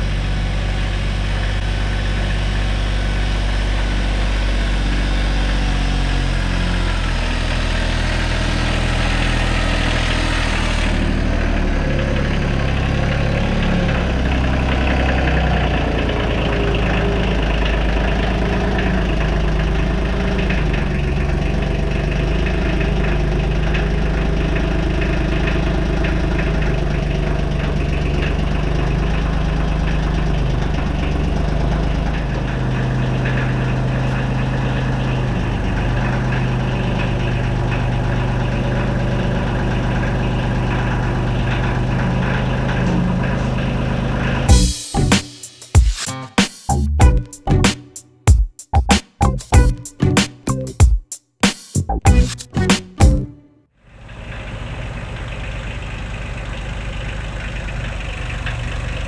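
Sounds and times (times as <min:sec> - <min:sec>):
excavator diesel engine: 0:00.0 - 0:45.5, 0:46.1 - 0:48.0, 0:48.7 - 0:50.8, 0:51.8 - 0:59.0
loader tractor engine: 0:00.0 - 0:45.5, 0:46.7 - 0:48.0, 0:49.2 - 0:50.8, 0:51.8 - 0:59.0.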